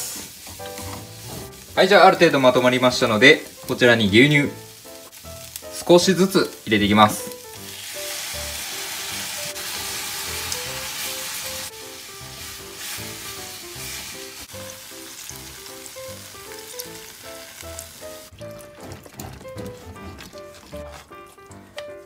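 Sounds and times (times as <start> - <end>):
sizzling in a frying pan: 0.0 - 18.6.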